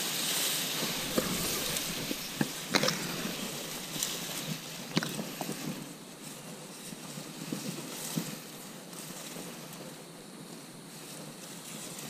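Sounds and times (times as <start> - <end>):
rustling hiss: 0.0 - 12.0.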